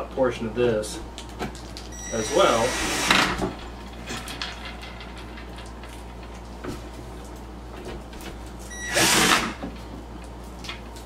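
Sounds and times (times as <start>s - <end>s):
cordless drill driving a screw: 2.0s - 3.4s, 8.8s - 9.6s.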